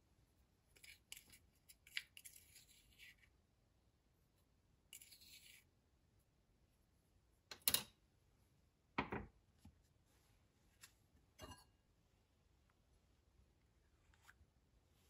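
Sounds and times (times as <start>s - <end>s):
spoon scraping in ceramic cup: 0.8s - 3.2s, 4.9s - 5.6s
dishes set down on wooden table: 9.0s - 9.4s.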